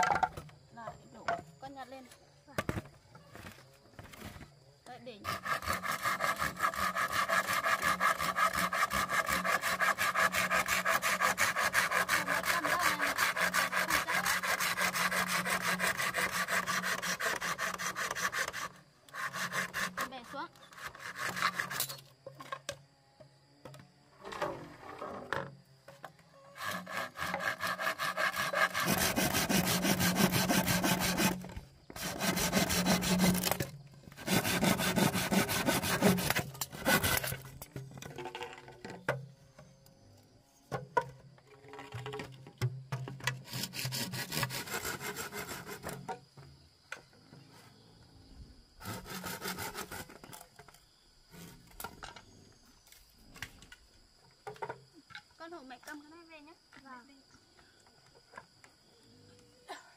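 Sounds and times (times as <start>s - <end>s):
saw cutting bamboo: 5.0s - 22.1s, 26.5s - 37.7s, 43.4s - 46.1s, 48.8s - 50.4s.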